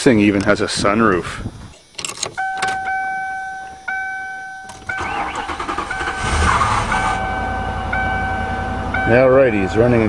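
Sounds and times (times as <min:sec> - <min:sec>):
dashboard warning chime: 0:02.4 - 0:09.8
starter motor cranking: 0:04.7 - 0:07.2
car engine running: 0:04.8 - 0:09.0.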